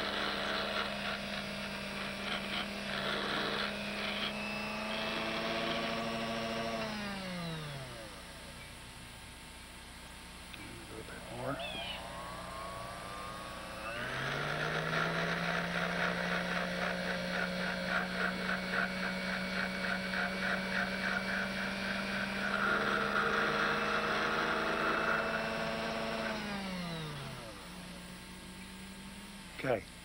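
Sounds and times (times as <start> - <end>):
file rasping on metal: 0.0 - 4.4, 14.6 - 23.8
lathe motor humming: 0.0 - 29.6.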